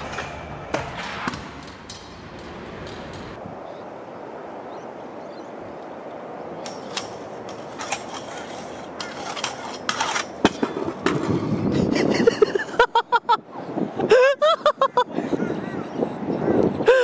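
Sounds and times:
scooter rolling on concrete: 0:00.0 - 0:03.4, 0:06.1 - 0:12.8
scooter grinding metal handrail: 0:06.6 - 0:12.1.

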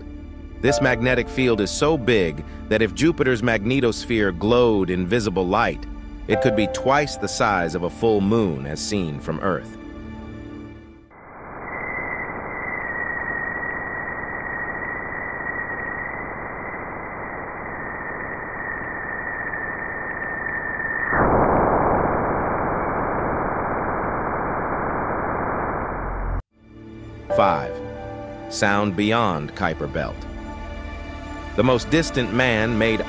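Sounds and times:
thin high tone: 0:06.3 - 0:08.5.

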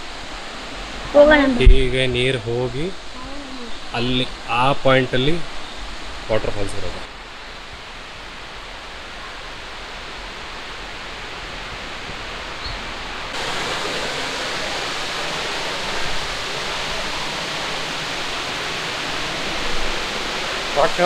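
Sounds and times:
waterfall rushing over rocks: 0:00.0 - 0:21.0.

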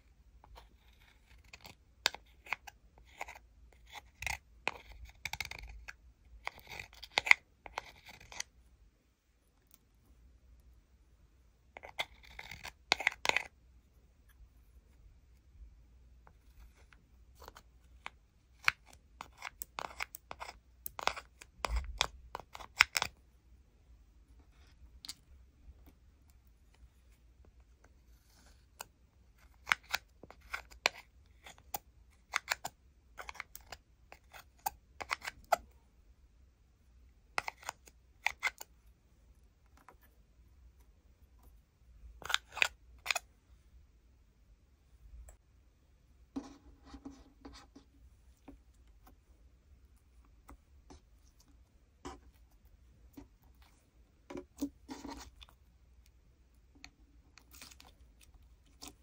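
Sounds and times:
metal spatula scraping plastic palette: 0:00.4 - 0:08.6, 0:11.6 - 0:15.0, 0:16.2 - 0:23.2, 0:24.4 - 0:35.8, 0:37.3 - 0:43.3, 0:46.4 - 0:49.3, 0:50.0 - 0:59.0.

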